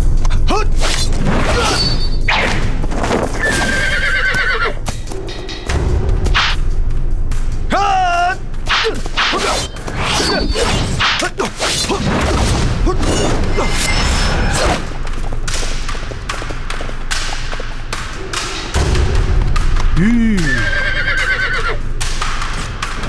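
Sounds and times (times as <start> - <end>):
horse whinnying: 3.4 - 4.8, 20.5 - 21.8
sharp hits and thuds: 4.8 - 7.7, 14.7 - 20.3
sword swishes: 8.7 - 12.0.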